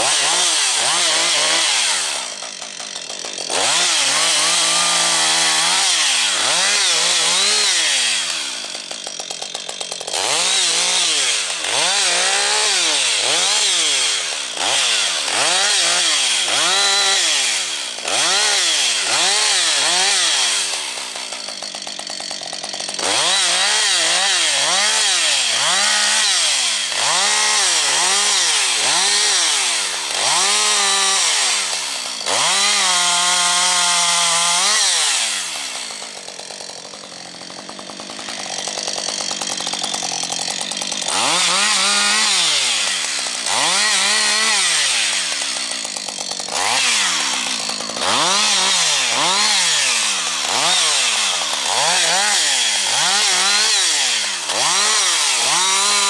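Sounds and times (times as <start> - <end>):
chainsaw revving: 0.0 - 56.0.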